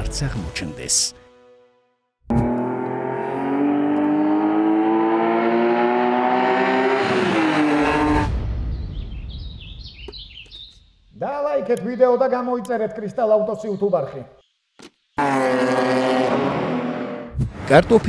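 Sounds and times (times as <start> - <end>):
race car engine revving: 2.3 - 8.3, 15.2 - 17.7.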